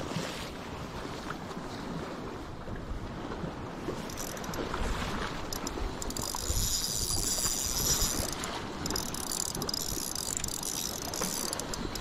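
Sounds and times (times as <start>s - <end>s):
wind and sea rumble: 0.0s - 12.0s
fishing reel gears whirring: 3.9s - 12.0s.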